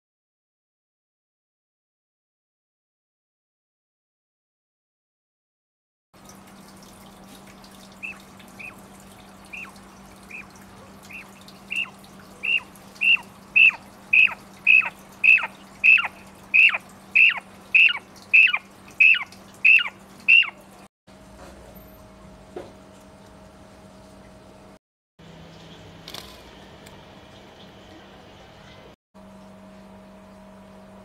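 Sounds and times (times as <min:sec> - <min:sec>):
steady low hum: 0:06.2 - 0:31.0
quail whistled calls: 0:08.0 - 0:08.8, 0:09.5 - 0:10.5, 0:11.1 - 0:20.6.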